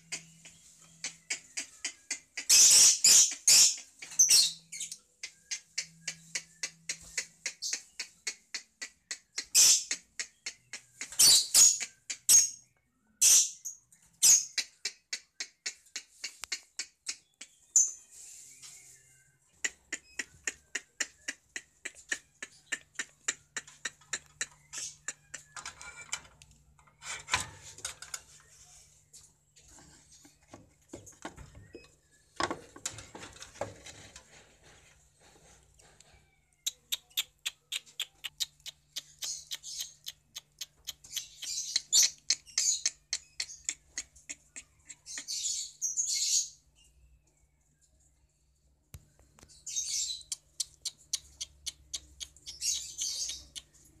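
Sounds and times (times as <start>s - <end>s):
lovebirds chirping and chattering: 0.0s - 54.0s.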